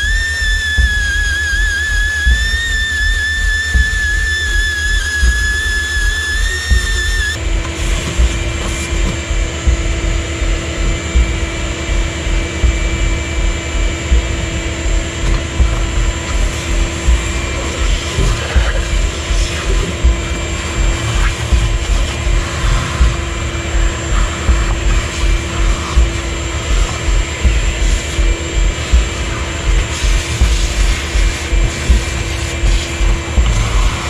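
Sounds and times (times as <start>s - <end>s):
shop vacuum running: 0.0s - 34.0s
whistle-like music tone: 0.0s - 34.0s.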